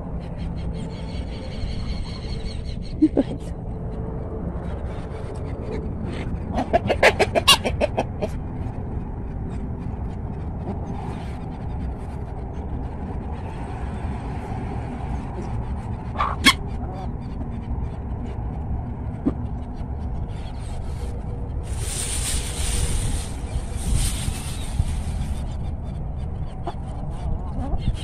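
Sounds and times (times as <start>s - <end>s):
low rumble: 0.0s - 28.0s
chickens clucking: 6.1s - 8.4s, 16.1s - 17.4s.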